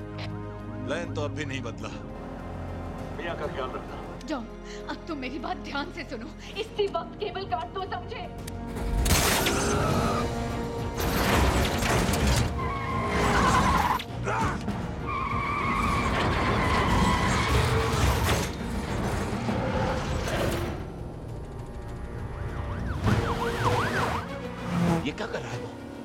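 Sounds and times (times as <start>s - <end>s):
film music score: 0.0s - 26.0s
tyres screeching: 11.0s - 20.6s.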